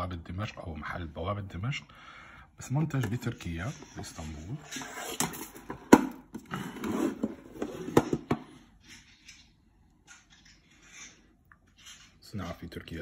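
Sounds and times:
tin rubbing and rustling: 0:03.0 - 0:08.4.

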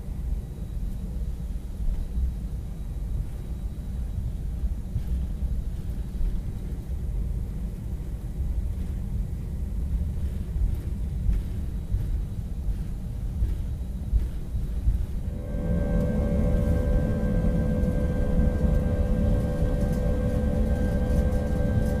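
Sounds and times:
aircraft cabin rumble: 0:05.0 - 0:22.0.

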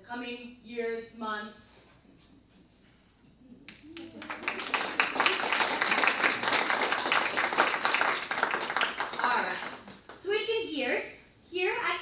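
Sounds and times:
audience applauding: 0:03.7 - 0:10.2.

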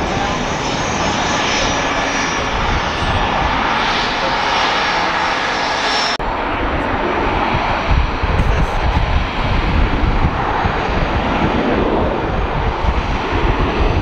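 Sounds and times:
jet engine roar and whine: 0:00.0 - 0:14.0
jet engines at takeoff power: 0:00.0 - 0:14.0.

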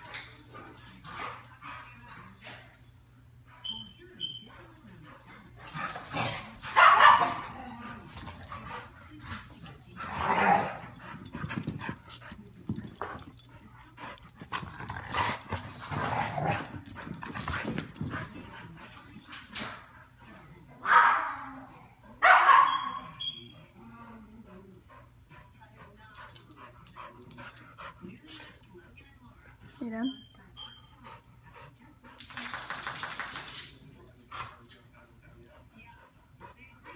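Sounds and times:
dogs barking and yipping: 0:05.7 - 0:09.0, 0:22.2 - 0:23.2.

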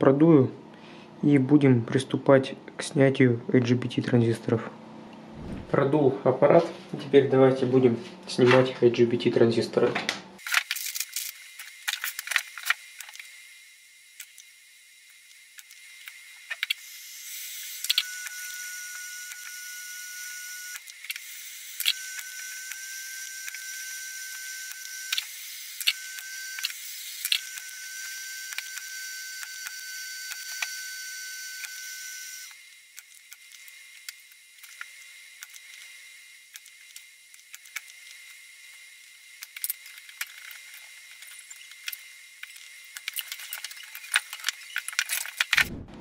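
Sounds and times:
desoldering tool whining: 0:10.4 - 0:45.9.

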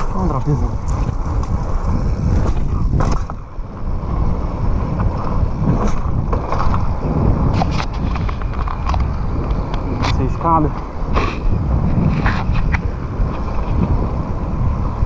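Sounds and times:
bike tyres rumbling on concrete: 0:00.0 - 0:15.0
sharp knocks from bike: 0:02.3 - 0:03.5, 0:04.9 - 0:10.2.

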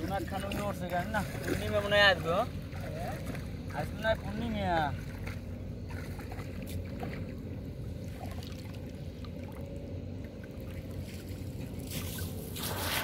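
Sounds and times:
water splashing and dripping: 0:00.0 - 0:04.1.

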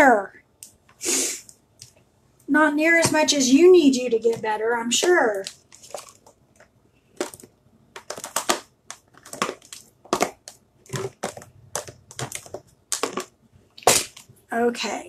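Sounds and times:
plastic jars and lids clacking: 0:05.0 - 0:14.3.

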